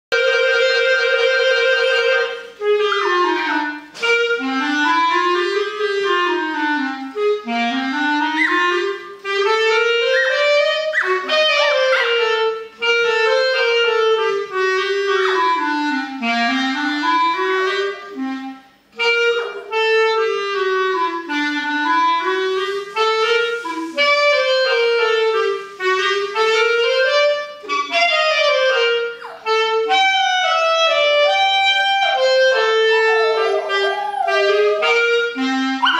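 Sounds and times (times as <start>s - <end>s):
dog howling: 2.8s - 3.5s, 8.3s - 8.8s, 9.7s - 12.6s, 15.0s - 15.7s, 19.2s - 20.2s, 28.5s - 35.9s
melody instrument playing runs: 27.0s - 35.9s.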